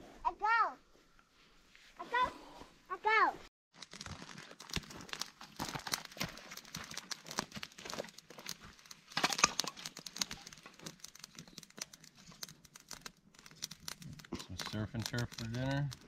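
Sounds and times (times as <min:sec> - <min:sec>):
campfire crackling and popping: 0:03.8 - 0:16.0
kindling sticks clattering: 0:05.2 - 0:16.0.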